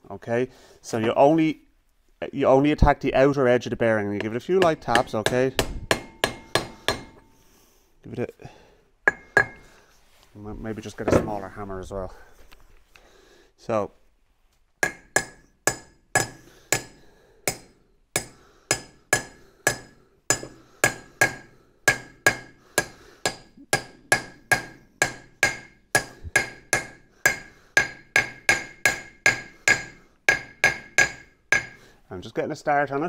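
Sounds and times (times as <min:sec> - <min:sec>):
hammer tapping metal: 0:04.2 - 0:07.3, 0:09.1 - 0:09.7, 0:14.8 - 0:31.8.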